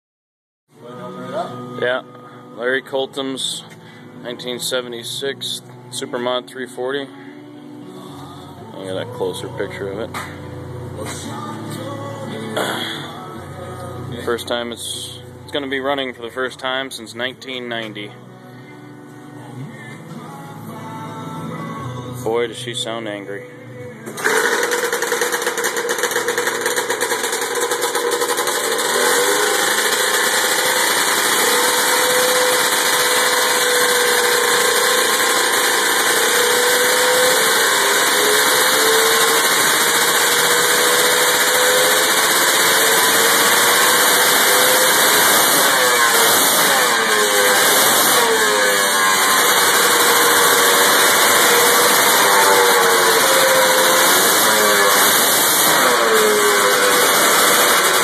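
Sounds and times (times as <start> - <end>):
snowmobile engine revving: 24.2 - 58.0
snowmobile engine idling: 24.3 - 58.0.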